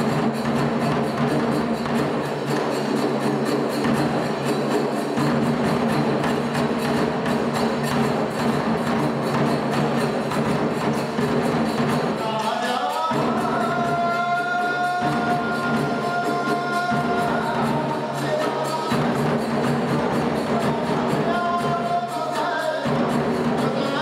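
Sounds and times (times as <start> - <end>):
large drum beating: 0.0 - 22.2, 22.8 - 24.0
hand cymbals: 0.0 - 24.0.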